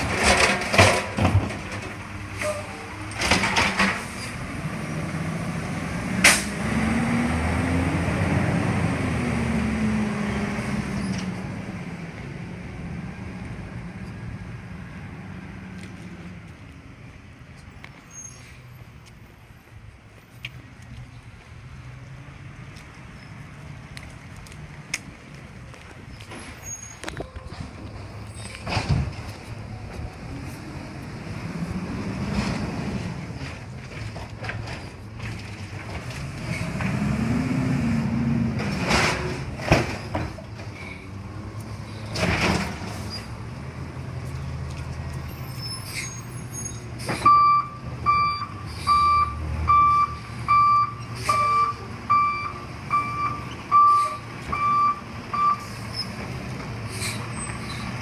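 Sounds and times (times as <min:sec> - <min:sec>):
garbage truck diesel engine revving: 0:04.4 - 0:10.9, 0:36.2 - 0:39.6
reversing alarm beeping: 0:47.2 - 0:55.7.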